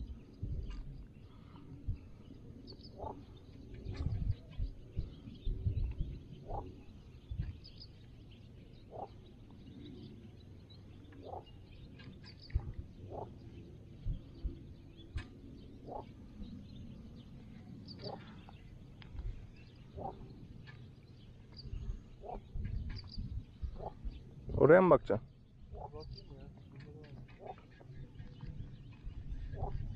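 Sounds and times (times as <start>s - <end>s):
small birds chirping: 0.0s - 29.9s.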